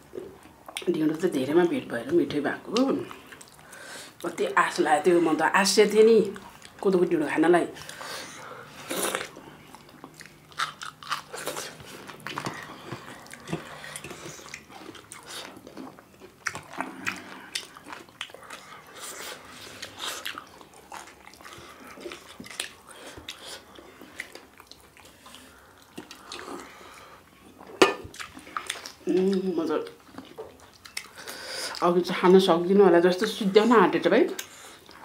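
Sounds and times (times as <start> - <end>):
chewing and biting: 8.9 - 26.8, 27.6 - 29.1.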